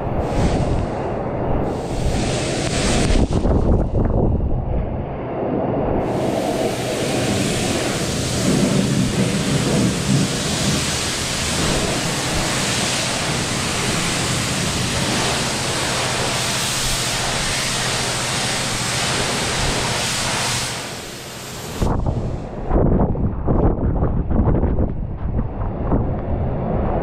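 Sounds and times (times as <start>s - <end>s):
pressure washer spraying water: 0.1s - 1.0s, 1.6s - 3.6s, 6.0s - 22.4s.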